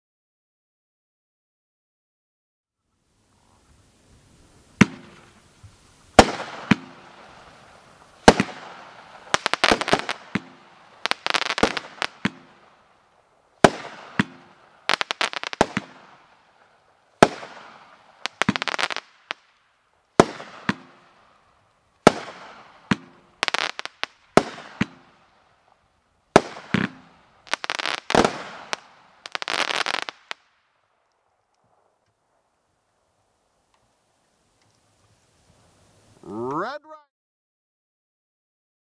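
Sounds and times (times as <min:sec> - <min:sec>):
firework bangs with crackling: 0:04.7 - 0:13.0, 0:13.6 - 0:25.4, 0:26.3 - 0:30.6.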